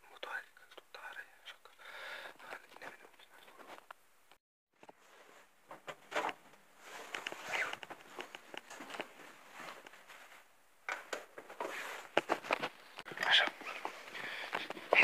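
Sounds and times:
rustling and knocks: 0:04.8 - 0:12.8
shuffling footsteps: 0:04.8 - 0:15.0.

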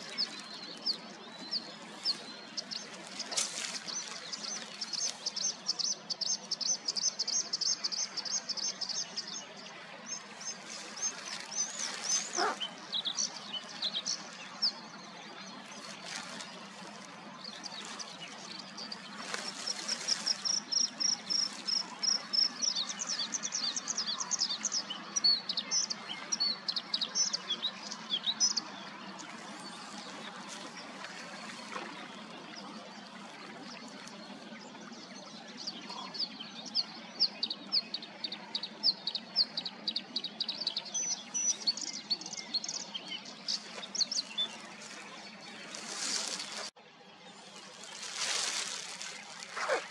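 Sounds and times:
bird singing: 0:00.0 - 0:33.3.

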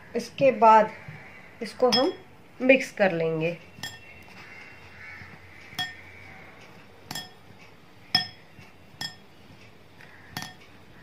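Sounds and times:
glass bowl clinking: 0:01.9 - 0:02.2, 0:03.8 - 0:04.1, 0:05.8 - 0:06.1, 0:07.1 - 0:07.5, 0:08.1 - 0:09.3, 0:10.4 - 0:10.6.

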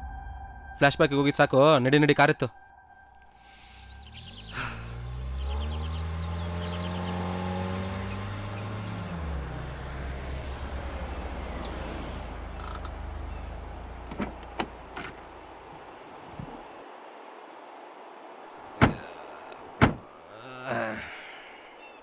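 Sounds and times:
car engine revving and idling: 0:04.0 - 0:16.7
car door clicks: 0:14.0 - 0:15.3, 0:16.3 - 0:16.6, 0:18.8 - 0:19.0, 0:19.8 - 0:20.0.

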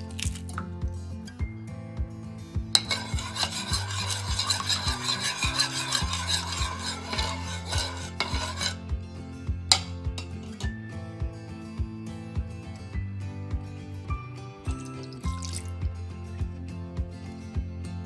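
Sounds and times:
spoon beating eggs in bowl: 0:02.8 - 0:08.8, 0:09.7 - 0:10.7
spoon tapping on bowl: 0:09.7 - 0:10.6.

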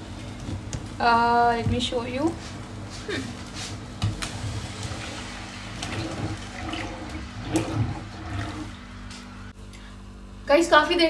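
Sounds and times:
low steady hum: 0:00.0 - 0:11.0
steady hiss: 0:03.7 - 0:09.6
milk bubbling and popping: 0:04.7 - 0:09.3.

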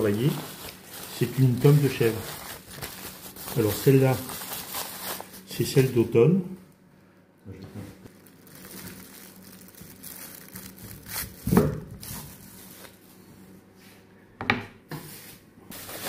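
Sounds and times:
paper wrapping crinkling: 0:00.0 - 0:06.0, 0:08.1 - 0:13.0, 0:15.8 - 0:16.0.

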